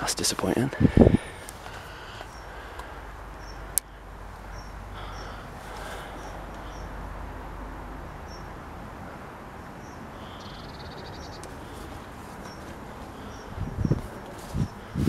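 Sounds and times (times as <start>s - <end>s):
heavy footsteps in grass: 13.7s - 15.0s.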